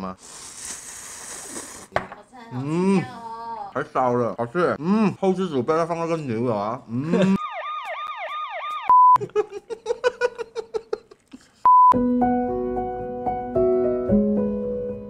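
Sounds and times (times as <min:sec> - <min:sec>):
warbling siren-like tone: 0:07.4 - 0:08.9
keyboard music with held chords: 0:12.0 - 0:15.0.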